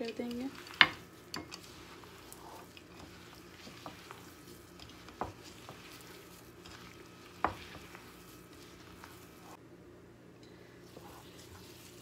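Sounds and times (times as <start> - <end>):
hand squishing dough: 0.0 - 9.6.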